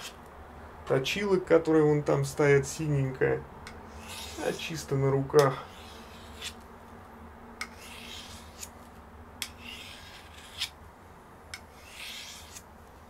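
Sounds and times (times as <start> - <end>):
blade rasping on sharpening stone: 3.9 - 4.6, 5.5 - 6.6, 7.6 - 8.7, 9.4 - 10.8, 11.6 - 12.7.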